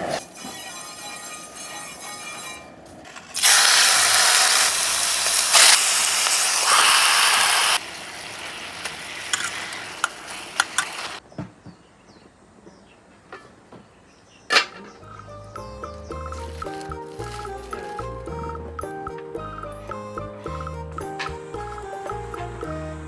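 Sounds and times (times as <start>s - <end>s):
chicken sizzling in hot oil: 3.4s - 11.2s.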